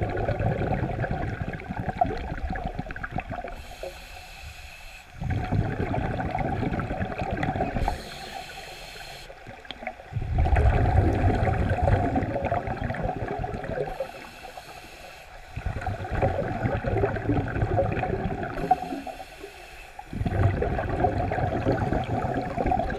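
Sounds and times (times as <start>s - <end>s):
bubbling exhalations underwater: 0.0s - 3.6s, 5.2s - 8.0s, 9.6s - 14.0s, 15.6s - 19.0s, 20.1s - 22.9s
regulator inhalation hiss: 3.6s - 5.2s, 7.8s - 9.4s, 13.9s - 15.6s, 18.6s - 20.2s.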